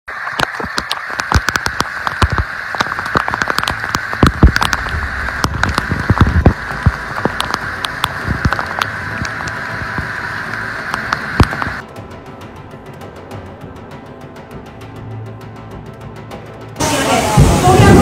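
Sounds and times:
torrential rain on pavement: 0.1s - 11.8s, 16.8s - 18.0s
low rumble: 2.9s - 11.8s, 16.8s - 18.0s.

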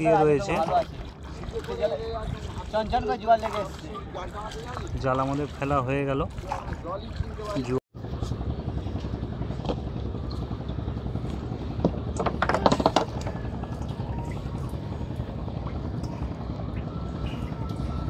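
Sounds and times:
low engine rumble: 0.0s - 18.0s.

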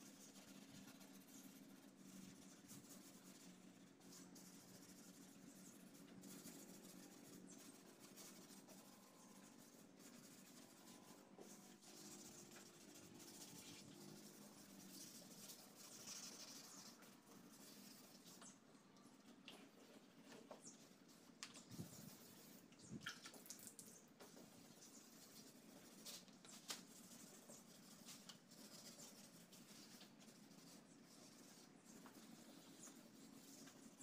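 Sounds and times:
sandpaper scratching on plastic: 0.1s - 18.4s.

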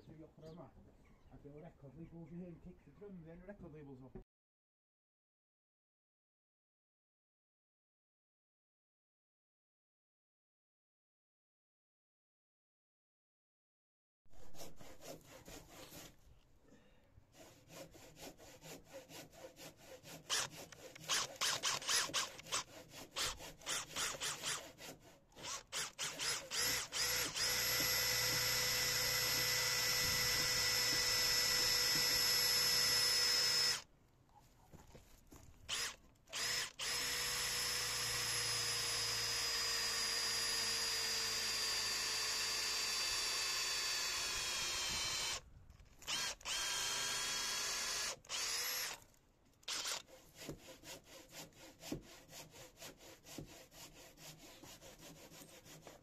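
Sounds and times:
power drill boring into wood: 20.3s - 24.7s, 25.4s - 33.8s, 35.7s - 45.4s, 46.0s - 49.0s, 49.6s - 50.1s.

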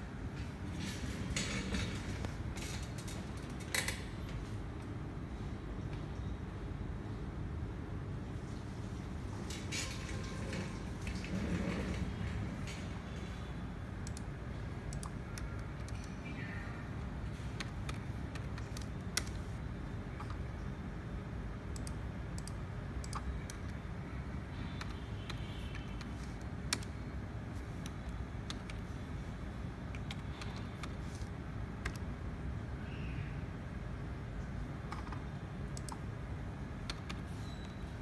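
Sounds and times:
keyboard keys clicking: 14.0s - 14.3s, 14.9s - 16.2s, 17.4s - 19.5s, 21.7s - 23.8s, 24.8s - 27.0s, 27.8s - 28.9s, 29.9s - 32.1s, 34.8s - 36.1s, 36.8s - 37.8s.

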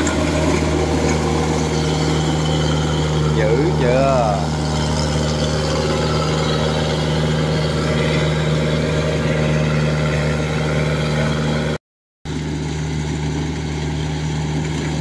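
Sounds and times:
combine harvester diesel engine: 0.0s - 15.0s.

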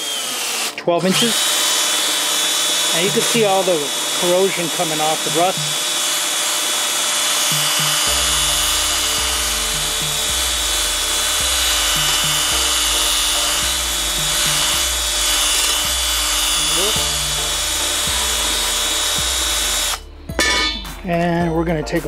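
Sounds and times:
cordless drill whine: 0.0s - 20.1s.

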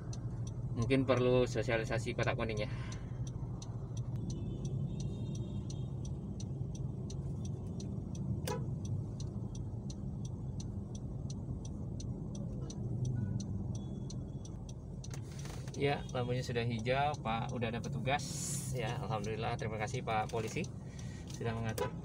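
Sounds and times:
car engine idling: 0.0s - 22.0s
quick regular ticking: 0.0s - 22.0s.

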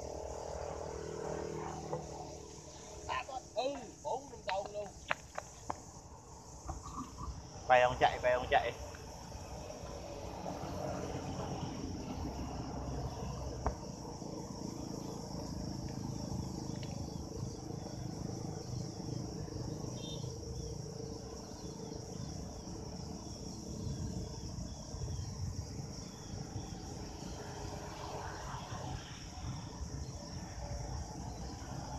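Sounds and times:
insects trilling: 0.0s - 31.9s
wind rumble on microphone: 21.6s - 27.4s.

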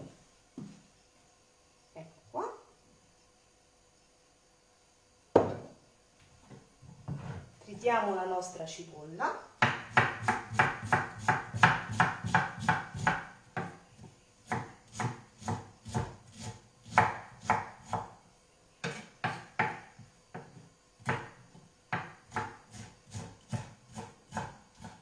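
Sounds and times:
knife chopping on wooden board: 5.4s - 5.7s, 9.6s - 13.8s, 14.5s - 18.1s, 18.8s - 25.0s.

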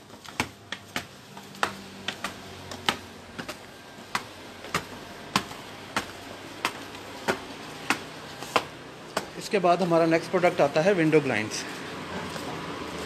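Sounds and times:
footsteps on stone stairs: 0.0s - 9.6s.

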